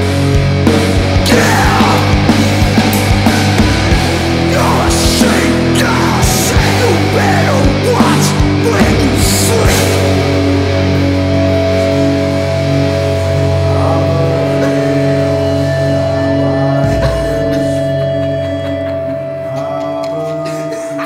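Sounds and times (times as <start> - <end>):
distorted electric guitar chord: 0.0 - 21.0.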